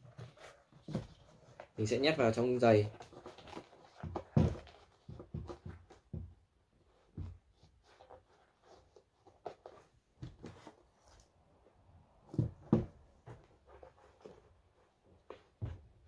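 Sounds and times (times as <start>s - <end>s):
soft rustles: 0.0s - 16.0s
shoe thumping on table: 4.0s - 6.4s, 12.2s - 13.4s.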